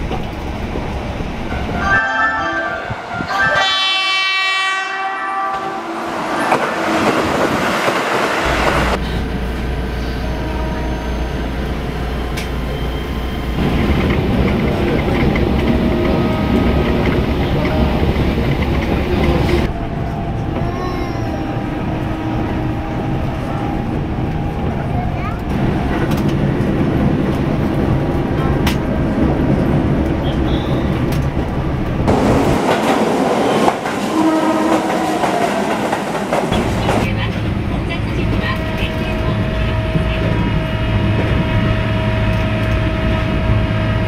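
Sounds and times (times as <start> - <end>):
train interior running hum: 0.0 - 2.0, 2.9 - 44.0
train passing with rail noise: 0.0 - 44.0
train horn: 1.5 - 6.7, 15.7 - 16.8, 30.2 - 30.9, 34.0 - 35.6.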